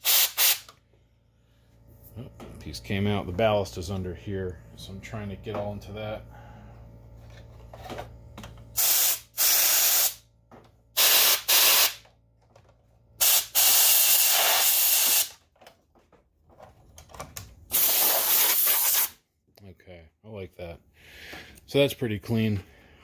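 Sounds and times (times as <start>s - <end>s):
compressed air blasts hissing: 0.0s - 0.7s, 8.8s - 10.2s, 11.0s - 12.0s, 13.2s - 15.4s, 17.7s - 19.1s.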